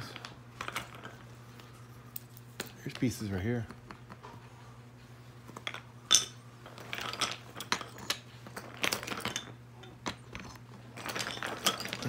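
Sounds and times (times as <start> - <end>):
wooden toy blocks clacking: 5.6 - 12.0.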